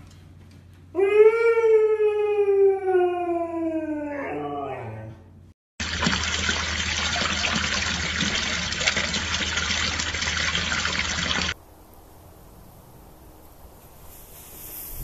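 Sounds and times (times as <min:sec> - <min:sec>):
water pouring and splashing: 0:05.8 - 0:11.6.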